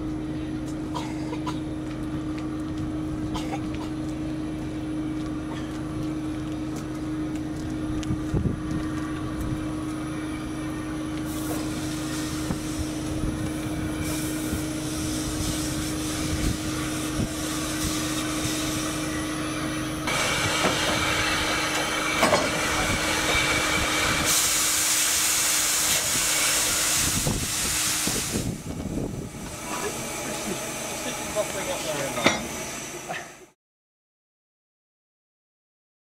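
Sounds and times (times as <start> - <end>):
steam locomotive hum: 0.0 - 33.6
steam hissing: 11.2 - 33.5
burst of escaping steam: 11.3 - 13.0, 13.9 - 19.1, 20.1 - 28.6.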